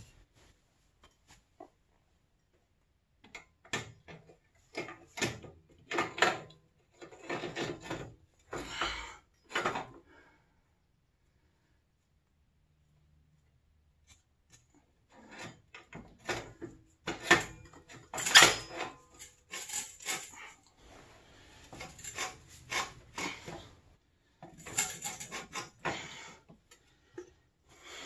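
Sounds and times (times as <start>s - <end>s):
metal tools clinking and knocking: 15.4s - 20.7s, 24.4s - 25.8s.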